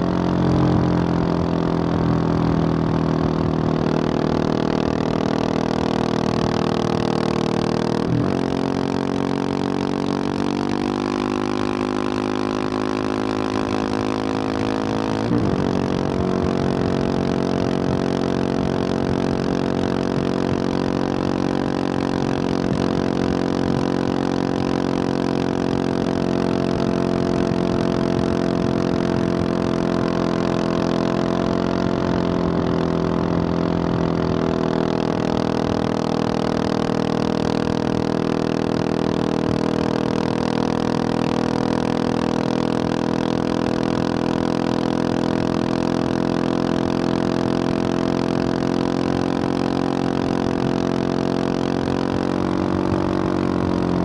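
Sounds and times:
motorcycle engine cruising: 0:00.0 - 0:54.0.

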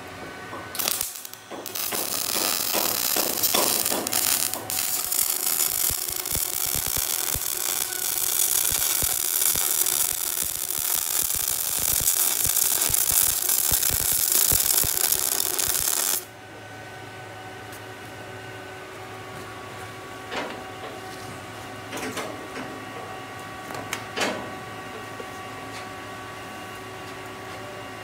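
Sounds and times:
welding arc crackling: 0:00.8 - 0:16.3.

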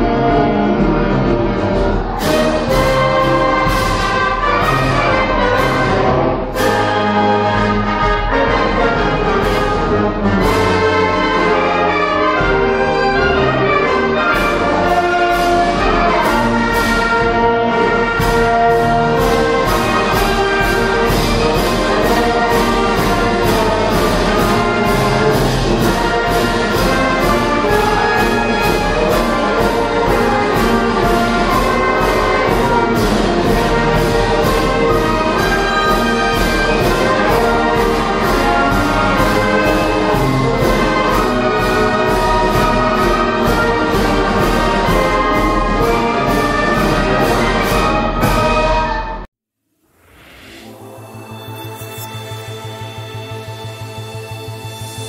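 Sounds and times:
steady percussion beat: 0:00.0 - 0:11.6, 0:13.8 - 0:49.0
concert band playing a march: 0:00.0 - 0:49.3, 0:50.6 - 0:55.0.

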